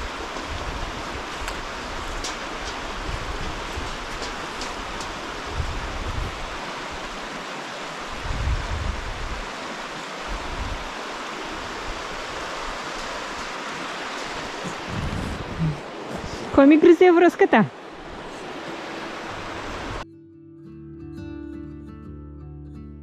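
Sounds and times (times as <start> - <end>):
river water rushing: 0.0 - 20.0
low rumbles: 14.3 - 16.6.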